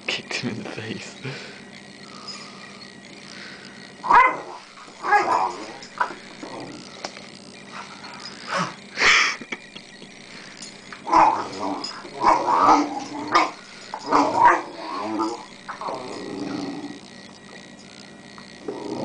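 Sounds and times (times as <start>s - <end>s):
puppy play noises: 10.0s - 19.0s.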